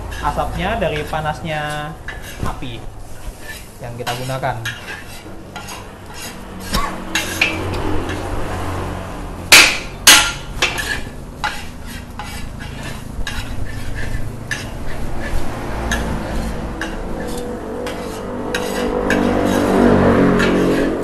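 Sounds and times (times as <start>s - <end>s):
metal spatula scraping wok: 0.0s - 21.0s
loud metal clangs: 9.5s - 11.6s.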